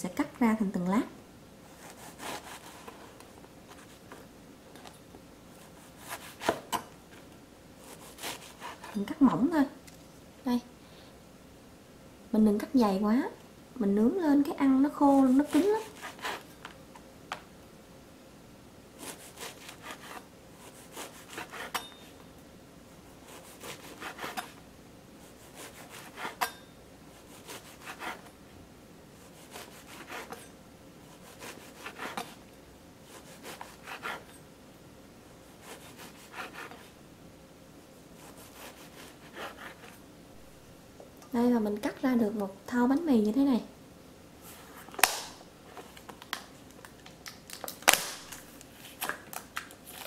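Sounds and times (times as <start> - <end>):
knife cutting bread crust: 1.7 - 4.1, 5.6 - 6.8, 7.8 - 9.1, 15.0 - 16.6, 19.0 - 22.0, 23.2 - 24.6, 25.2 - 28.3, 29.2 - 32.4, 33.0 - 34.4, 35.6 - 37.0, 38.2 - 40.0.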